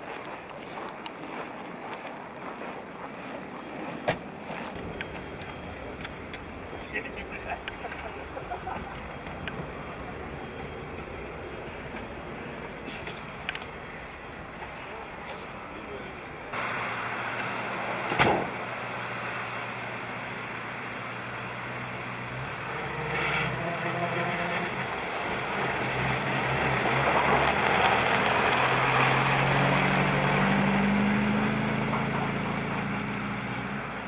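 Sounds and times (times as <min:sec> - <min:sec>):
van engine pulling away: 0:04.8 - 0:34.0
sliding van door slamming: 0:18.0 - 0:18.7.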